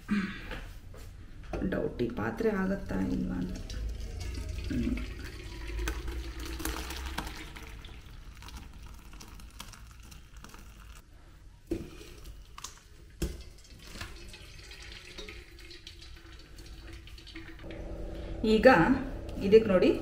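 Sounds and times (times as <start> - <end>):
liquid pouring and splashing: 2.7 - 11.0, 11.7 - 17.8
liquid trickling through cloth: 2.7 - 11.0, 12.0 - 17.7.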